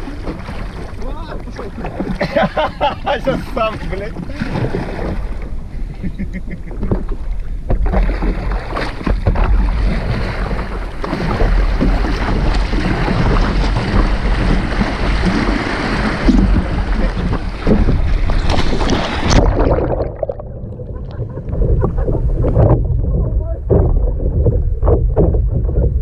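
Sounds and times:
water splashing: 0.0 - 26.0
wind buffeting microphone: 0.0 - 26.0
muffled underwater sound: 9.3 - 18.4, 19.2 - 26.0.

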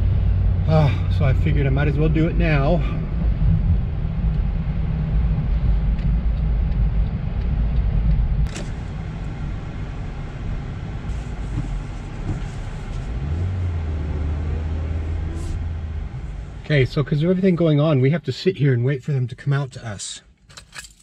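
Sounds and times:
steady low hum: 0.0 - 17.6
car engine and road rumble: 0.0 - 21.0
click inside car: 5.9 - 9.6.

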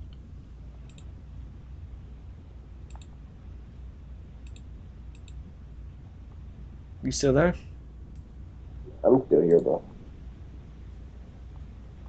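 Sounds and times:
steady low hum: 0.0 - 12.0
faint short clicks: 0.8 - 1.1, 2.9 - 3.1, 4.4 - 5.4.

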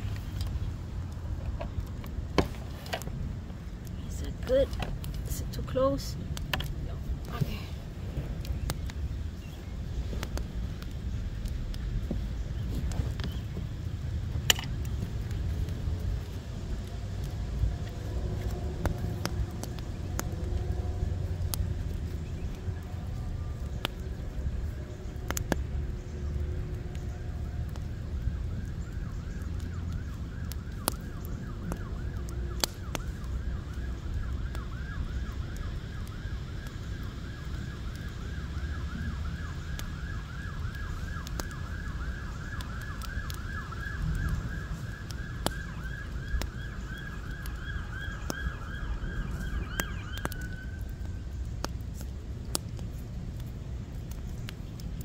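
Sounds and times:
low rumble: 0.0 - 34.1
wood fire crackling and popping: 0.0 - 55.0
distant siren warbling: 17.4 - 51.8.

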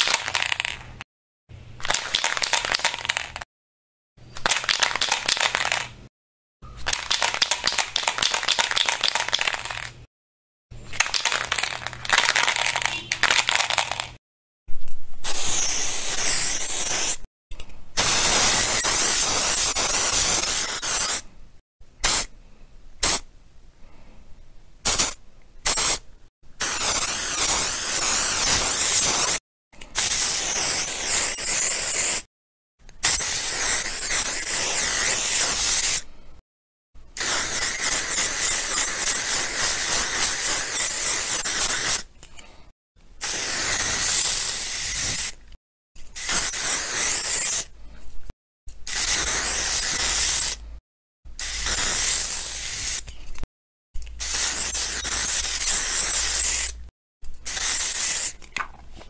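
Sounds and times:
aerosol can spraying: 15.2 - 17.2, 18.0 - 21.2, 22.0 - 22.3, 24.9 - 26.0, 26.6 - 29.4, 30.0 - 32.3, 33.0 - 36.0, 37.2 - 42.1, 43.2 - 45.4, 46.1 - 47.7, 48.9 - 50.6, 51.4 - 53.1, 54.2 - 56.8, 57.5 - 58.4.

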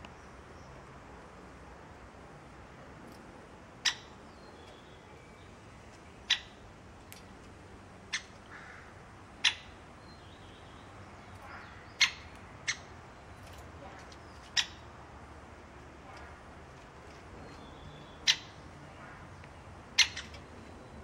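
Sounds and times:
woodpecker high-pitched calls: 3.8 - 5.5, 6.2 - 6.6, 8.0 - 15.0, 17.4 - 18.7, 19.9 - 21.0.

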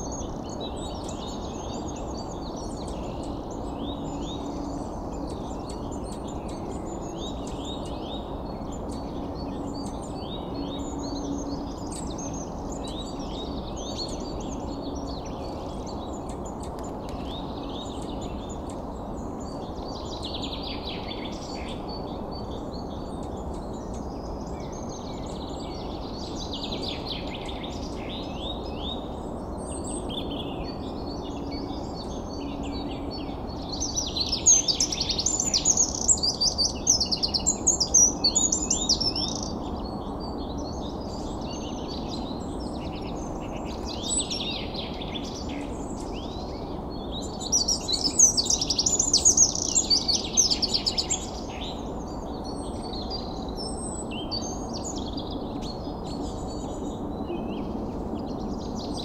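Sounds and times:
birds chirping and singing: 0.0 - 59.0
steady background hiss: 0.0 - 59.0.

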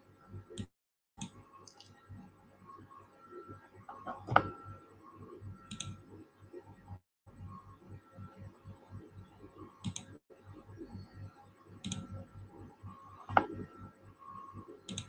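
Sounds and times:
computer mouse clicks: 5.7 - 6.0, 9.8 - 10.2, 11.8 - 12.2.

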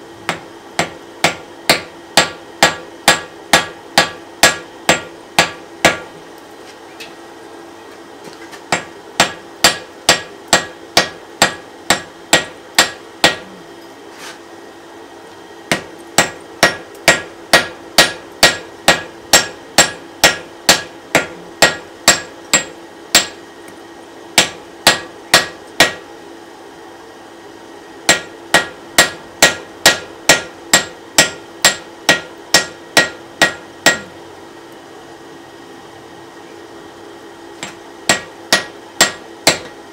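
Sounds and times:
hammer ringing on anvil: 15.7 - 23.4, 24.4 - 26.0, 28.1 - 34.1, 38.1 - 39.7.

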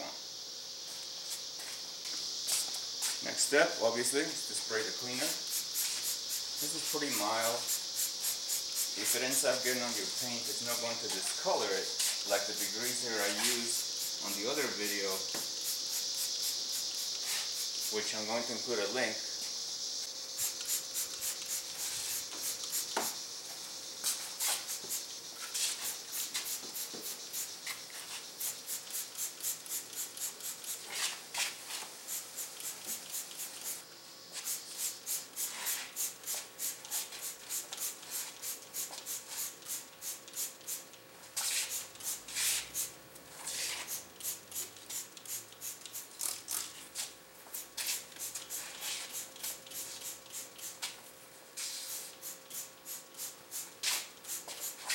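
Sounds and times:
spray bottle squirts: 15.5 - 17.9, 20.4 - 23.2, 24.0 - 40.8, 41.4 - 51.0, 51.6 - 54.9.

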